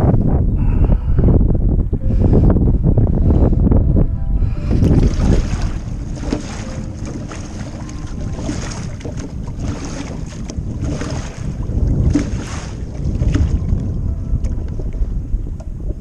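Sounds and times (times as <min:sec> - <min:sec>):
wind buffeting microphone: 0:00.0 - 0:16.0
water lapping against boat hull: 0:04.6 - 0:16.0
short knocks and splashes: 0:04.8 - 0:15.0.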